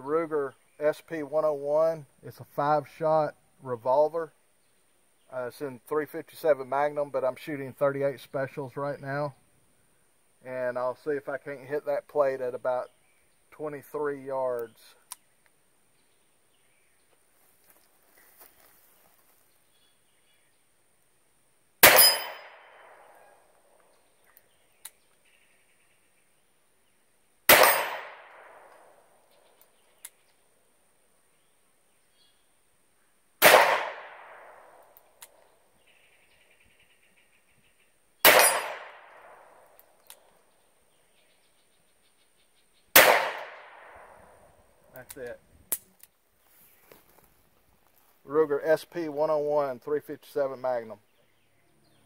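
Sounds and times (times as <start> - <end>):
revolver shots: 27.5 - 28.7, 33.4 - 34.4.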